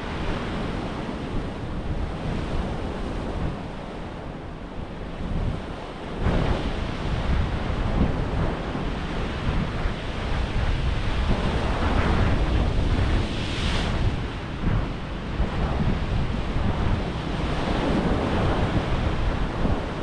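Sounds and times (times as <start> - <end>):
sea surf washing in: 0.0 - 20.0
wind buffeting microphone: 0.0 - 20.0.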